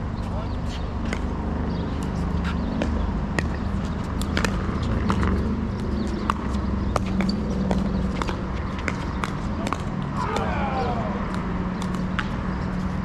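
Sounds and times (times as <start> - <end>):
ball bouncing on court: 1.0 - 1.4, 2.7 - 12.8
paddles hitting plastic ball: 11.3 - 12.4.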